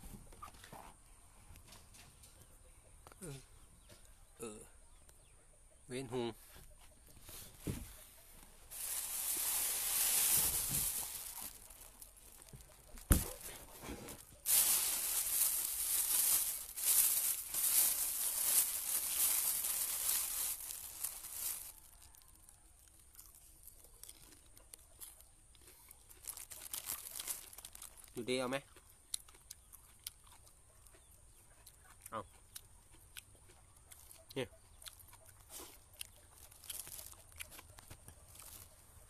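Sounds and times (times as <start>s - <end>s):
plastic bags rustling: 8.7s - 22.2s, 26.2s - 28.2s, 36.4s - 37.2s.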